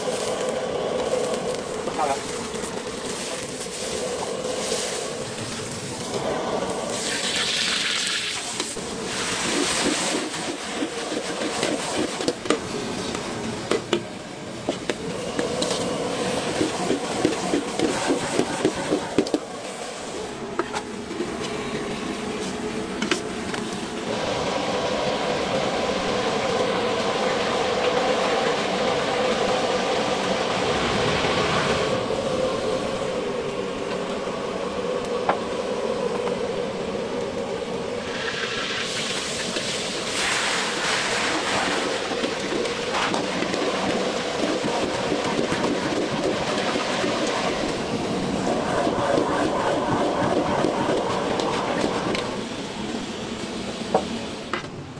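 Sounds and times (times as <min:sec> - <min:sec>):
gas burner running: 0:00.0 - 0:36.4
food sizzling in a wok: 0:06.9 - 0:12.1, 0:38.1 - 0:42.2.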